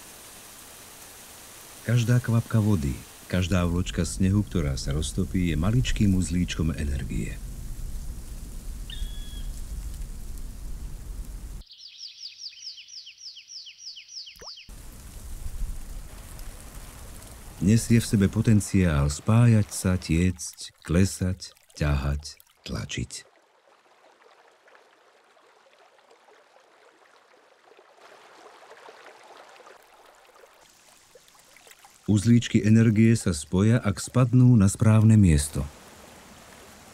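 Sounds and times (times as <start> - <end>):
rain falling: 0.0 - 11.6, 14.7 - 22.2, 29.5 - 36.9
stream trickling: 0.0 - 12.7, 14.0 - 36.9
bird singing descending notes: 8.9 - 9.6, 11.6 - 14.7.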